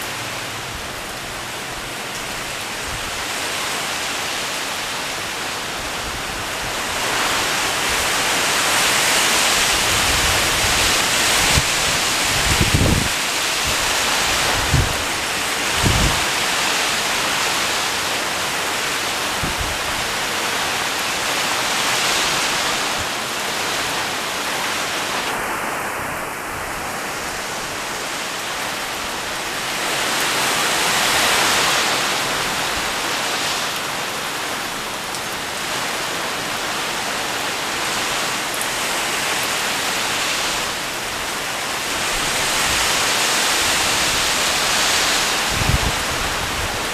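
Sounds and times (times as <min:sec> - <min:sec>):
heavy rain on leaves: 0:00.0 - 0:46.9
wind buffeting microphone: 0:05.8 - 0:17.6, 0:19.1 - 0:20.6, 0:40.2 - 0:46.9.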